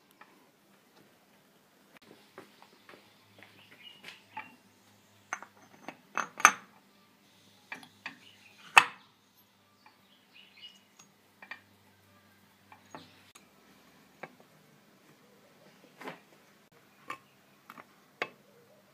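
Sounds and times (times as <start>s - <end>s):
light metallic clinks and taps: 5.3s - 6.6s.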